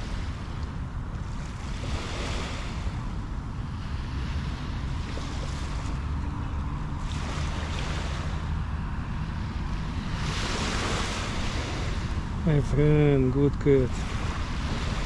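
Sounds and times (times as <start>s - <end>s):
waves washing onto sandy shore: 0.0s - 15.0s
wind rumble on microphone: 0.0s - 15.0s.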